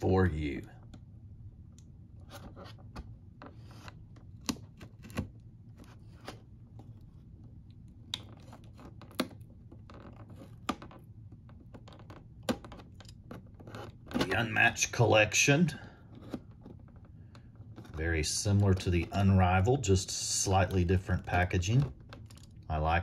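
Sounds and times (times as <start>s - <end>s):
cardboard scratching and rustling: 2.2s - 7.3s, 8.3s - 12.6s.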